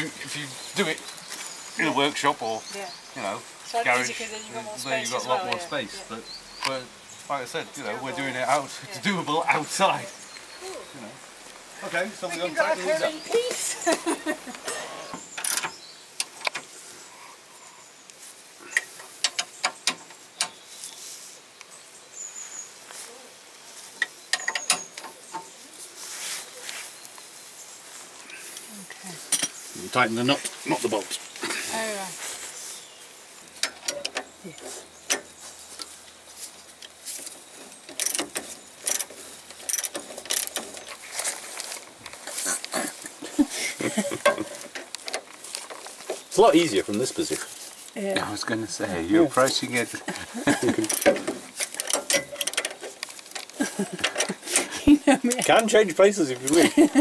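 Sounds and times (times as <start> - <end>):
spanners clinking on metal bolt: 24.3 - 25.4, 33.6 - 34.3, 50.8 - 54.7.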